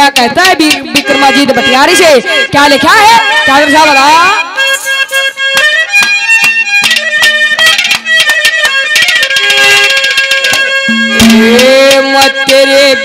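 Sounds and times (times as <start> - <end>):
held melody line: 0.2 - 13.0
fast drum strokes: 10.9 - 12.2.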